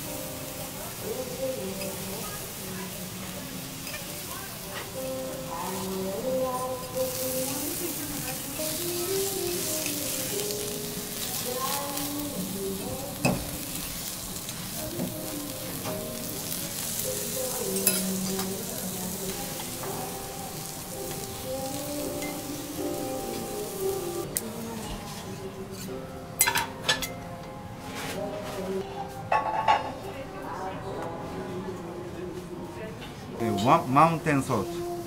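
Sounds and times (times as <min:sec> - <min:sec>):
beef sizzling on a griddle: 0:00.0 - 0:24.7
soft background music: 0:00.0 - 0:35.0
metal utensils clicking on griddle: 0:16.7 - 0:18.7.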